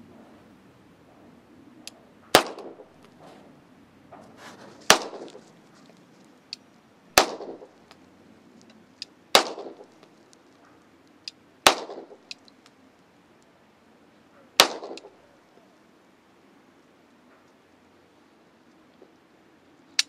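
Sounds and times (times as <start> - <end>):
pistol shots with echo: 2.3 - 2.9, 4.9 - 5.4, 7.2 - 7.8, 9.3 - 9.9, 11.6 - 12.3, 14.6 - 15.2.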